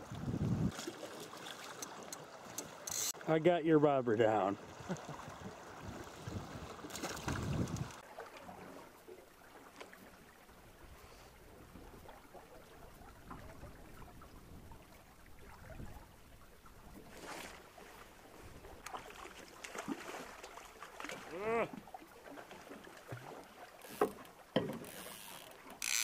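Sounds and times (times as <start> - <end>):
water lapping along boat hull: 0.0 - 26.0
fish splashing into river: 6.2 - 8.8, 18.9 - 21.3.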